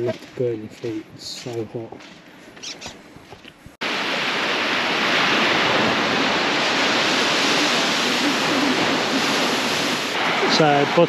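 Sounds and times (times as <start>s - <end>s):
surf breaking on beach: 3.8s - 11.0s.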